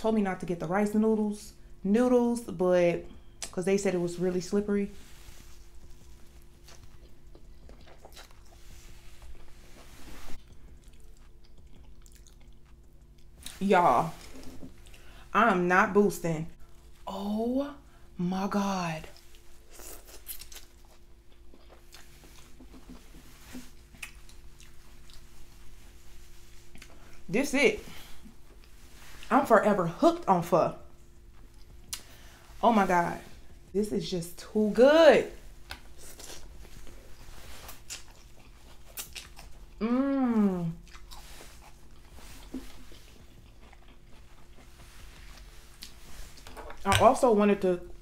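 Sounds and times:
person chewing food: 0:05.3 - 0:13.6, 0:14.2 - 0:15.2, 0:19.1 - 0:27.2, 0:31.0 - 0:32.4, 0:35.6 - 0:46.9
person humming mmm: 0:39.8 - 0:40.8.

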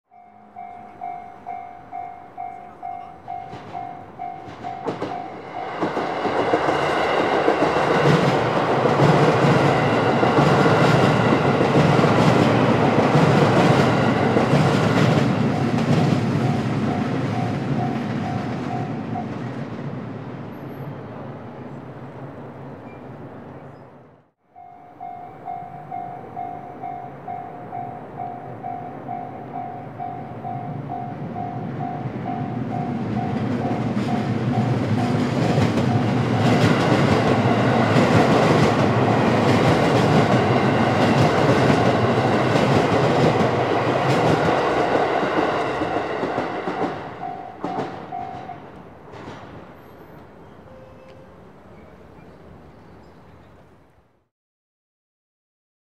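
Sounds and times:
electric train rumble and clatter: 0:00.1 - 0:24.0, 0:25.0 - 0:53.8.

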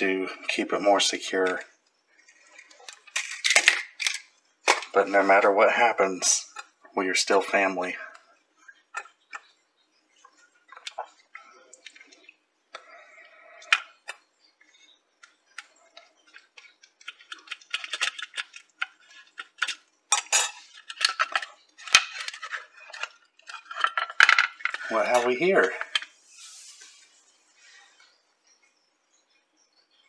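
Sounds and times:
small metal clicks and scrapes: 0:10.2 - 0:26.1.

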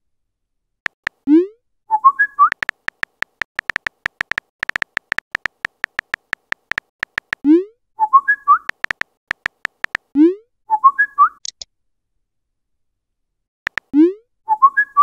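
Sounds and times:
keyboard tap clicks: 0:00.9 - 0:01.2, 0:02.5 - 0:07.4, 0:08.7 - 0:10.1, 0:13.7 - 0:13.9
rising message sent pop: 0:02.5 - 0:07.4.

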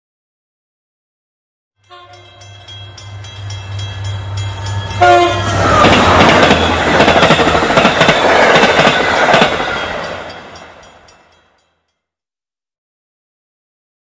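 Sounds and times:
train horn blast: 0:01.8 - 0:02.5, 0:03.1 - 0:07.0
train engine rumble: 0:02.0 - 0:11.4
train wheels clattering: 0:02.2 - 0:11.2.

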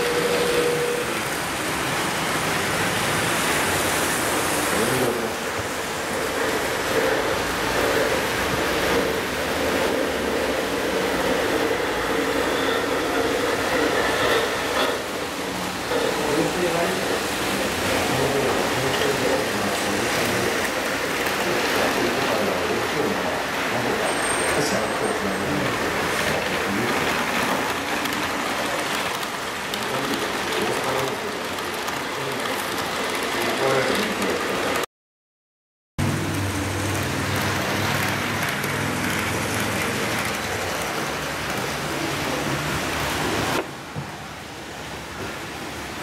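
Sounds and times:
wheels running on rails: 0:00.0 - 0:34.8, 0:36.0 - 0:43.6
model train wheels rattling: 0:24.7 - 0:34.8.

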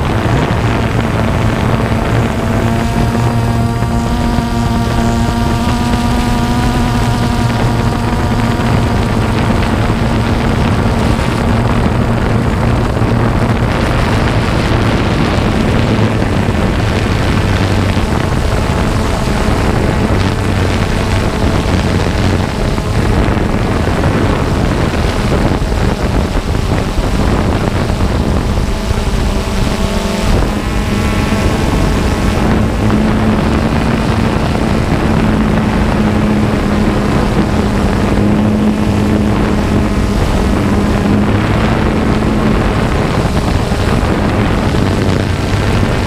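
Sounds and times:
drone propellers buzzing: 0:00.0 - 0:46.0
high motor whine: 0:00.0 - 0:46.0.

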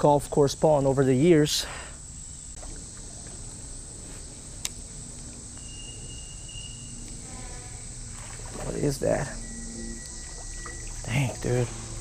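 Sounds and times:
insects droning high-pitched: 0:00.0 - 0:12.0
faint thin whistle: 0:05.6 - 0:07.7, 0:09.4 - 0:11.1.

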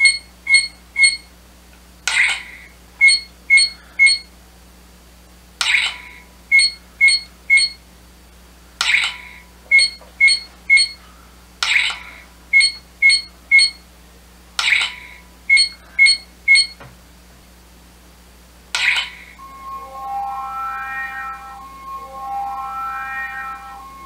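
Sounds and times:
high electronic beeps: 0:19.4 - 0:24.0.

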